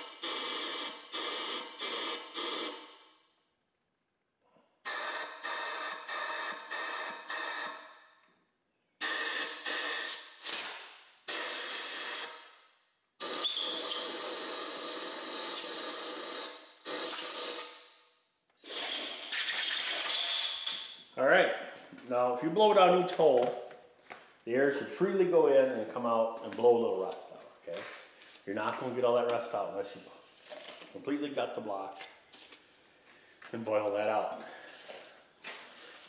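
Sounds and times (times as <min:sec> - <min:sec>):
compressed air blasts hissing: 0:18.6 - 0:20.5.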